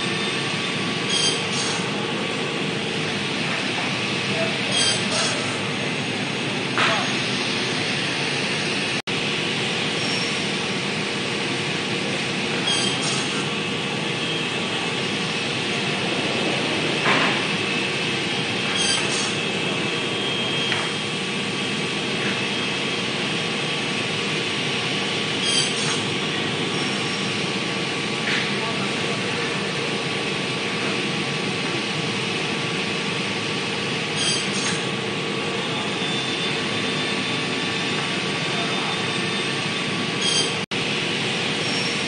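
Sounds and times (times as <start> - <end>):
saw machinery running: 0.0 - 42.0
sharp saw cutting strokes: 4.7 - 5.7, 18.8 - 19.4.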